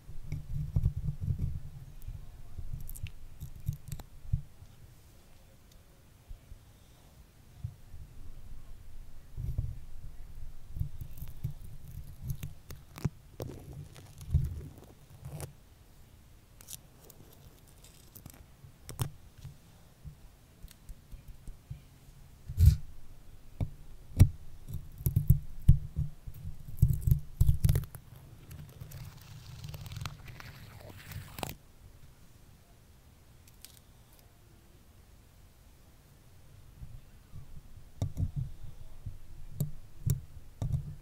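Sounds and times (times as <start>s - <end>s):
stickers crackling on microphone: 26.6s - 31.6s.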